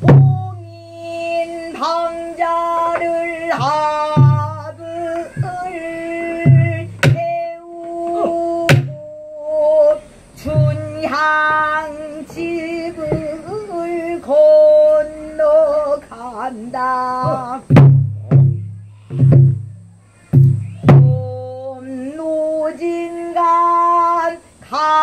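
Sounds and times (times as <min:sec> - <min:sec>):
barrel drum strokes: 0:00.0 - 0:01.3, 0:02.9 - 0:09.8, 0:10.4 - 0:13.6, 0:17.2 - 0:21.4
woman singing long bending notes: 0:00.0 - 0:17.8, 0:20.3 - 0:25.0.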